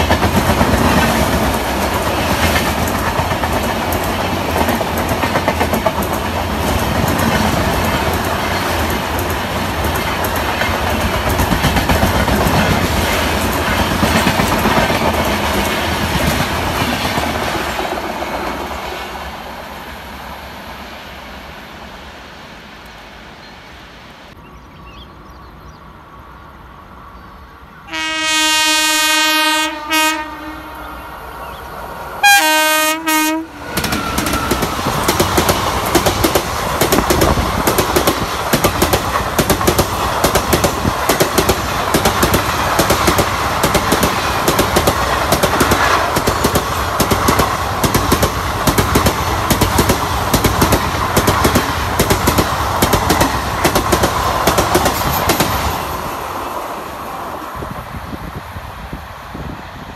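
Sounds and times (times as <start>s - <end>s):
train rushing past: 0.0s - 24.4s, 25.1s - 59.9s
locomotive horn: 27.9s - 31.2s, 32.2s - 34.7s.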